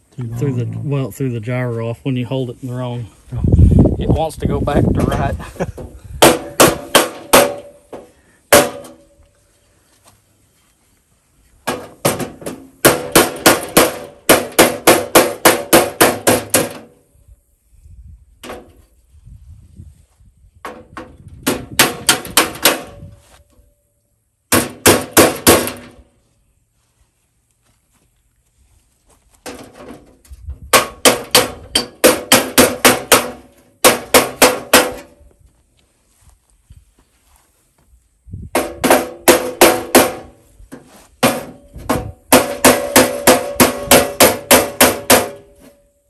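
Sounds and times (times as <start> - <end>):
hammer striking sheet metal: 6.2 - 7.8, 8.5 - 9.0, 11.7 - 16.9, 21.4 - 23.1, 24.5 - 26.0, 30.7 - 35.2, 38.5 - 40.4, 41.2 - 45.8.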